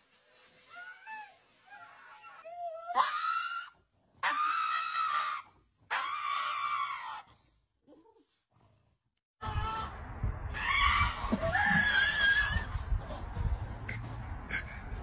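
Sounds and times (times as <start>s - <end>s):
dog screaming: 2.7s - 7.3s.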